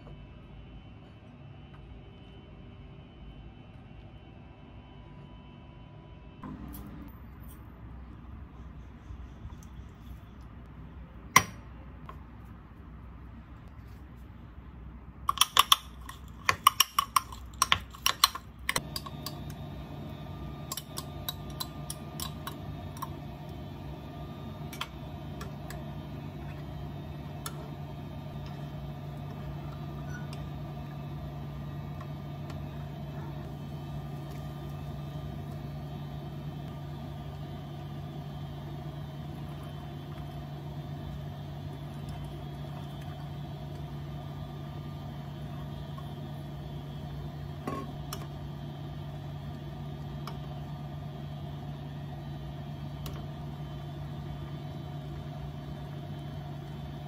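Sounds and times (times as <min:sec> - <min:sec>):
appliance humming: 0:00.0 - 0:13.7, 0:15.0 - 0:57.0.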